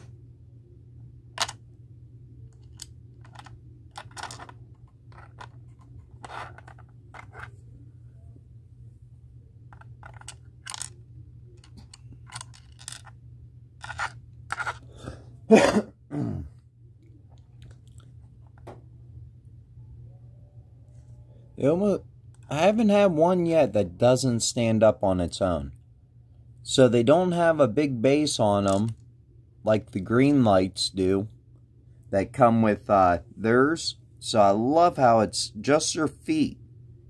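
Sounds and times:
faint steady hum: 0:00.0 - 0:37.0
metal figures clicking and scraping: 0:02.6 - 0:07.6, 0:09.8 - 0:11.0, 0:11.6 - 0:13.2, 0:13.8 - 0:14.8.

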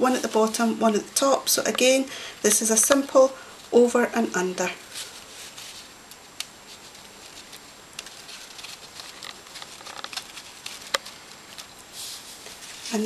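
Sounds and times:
thin paper rustling and ticking: 0:04.8 - 0:13.0.

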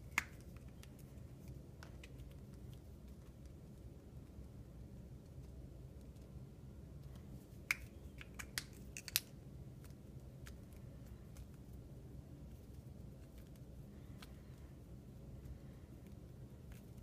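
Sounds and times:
marker clicks and taps: 0:07.7 - 0:10.6.

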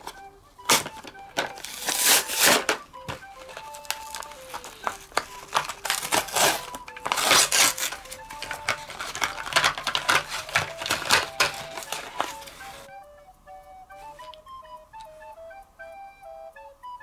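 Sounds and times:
packaging crinkling and tearing: 0:00.0 - 0:12.9
light background music: 0:00.0 - 0:17.0.

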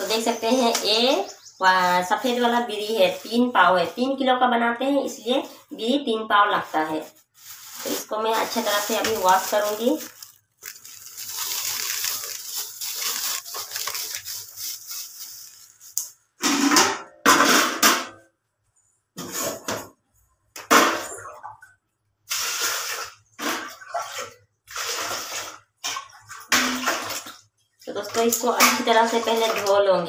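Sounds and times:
plastic bag crinkling: 0:06.6 - 0:16.0
lentils pouring into bucket: 0:07.4 - 0:15.6
water splashing into bucket: 0:07.6 - 0:15.1, 0:20.7 - 0:30.0.

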